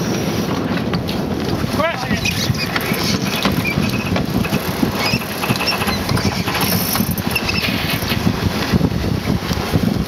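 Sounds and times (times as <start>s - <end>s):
water rushing along hull: 0.0s - 10.0s
wind buffeting microphone: 0.0s - 10.0s
high squeaks and clicks: 2.2s - 8.2s.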